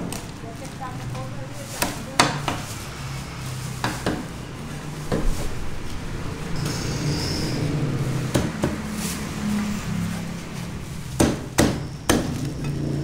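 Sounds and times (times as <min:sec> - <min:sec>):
cleaver chopping on wooden block: 0:11.2 - 0:12.5.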